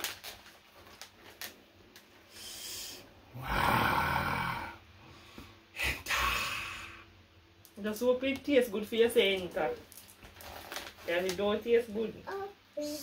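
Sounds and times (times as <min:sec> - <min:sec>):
man's raspy breathy exclamation: 0:03.3 - 0:04.8, 0:05.8 - 0:07.0
soft rustle: 0:09.2 - 0:12.0.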